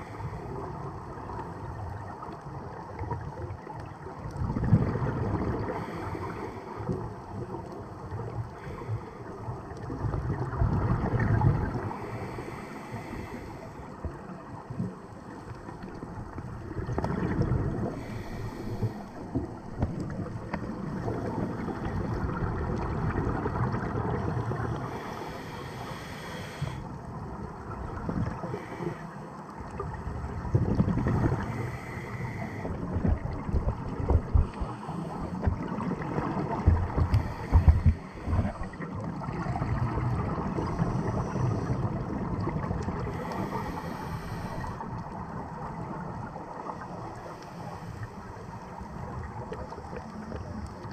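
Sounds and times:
regulator inhale hiss: 0.0s - 0.7s, 5.7s - 7.0s, 8.5s - 9.4s, 11.9s - 14.0s, 17.9s - 19.4s, 24.6s - 27.0s, 28.4s - 29.4s, 31.2s - 32.8s, 36.9s - 38.8s, 43.0s - 44.9s, 46.8s - 48.6s
exhaled air bubbling: 0.0s - 50.9s.

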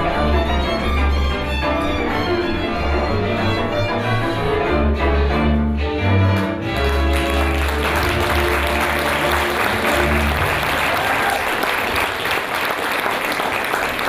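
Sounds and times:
folk string band playing: 0.0s - 11.1s
audience applause: 6.6s - 14.0s.

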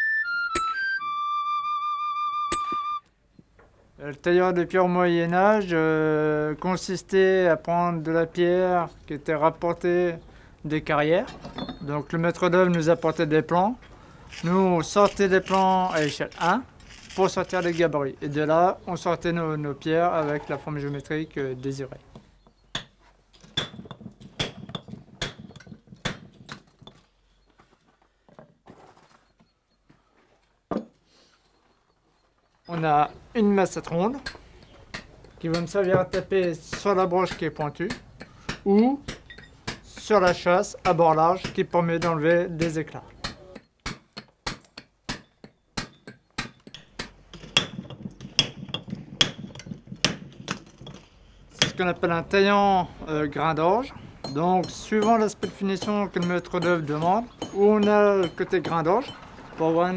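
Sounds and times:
hammer striking chisel on stone: 22.7s - 27.0s, 34.1s - 51.0s, 51.6s - 51.9s, 54.2s - 59.3s.

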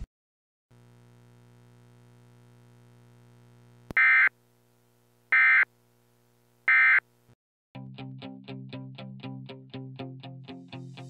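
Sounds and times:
music with plucked notes: 7.8s - 11.0s.

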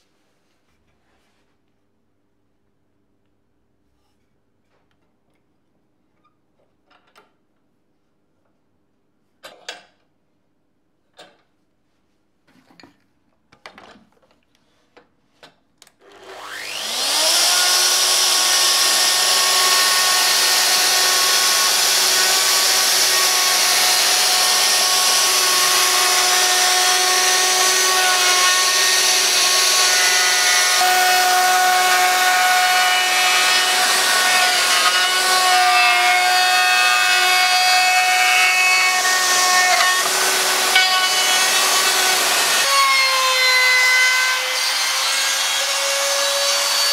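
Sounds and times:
router whining cutting wood: 16.0s - 46.9s.

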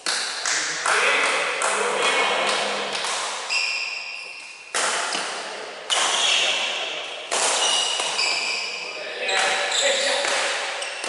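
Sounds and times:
racket hitting shuttlecock: 0.0s - 8.8s, 9.4s - 11.0s
shoes squeaking on court floor: 2.0s - 5.3s, 5.9s - 11.0s.

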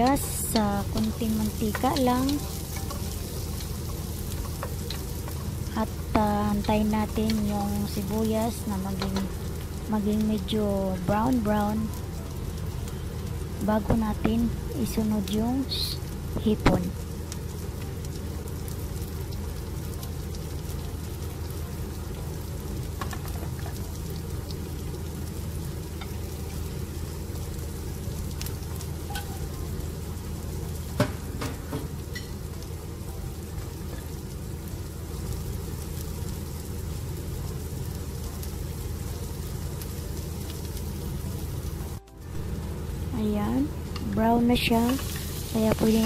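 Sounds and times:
onions sizzling in oil: 0.0s - 46.0s.

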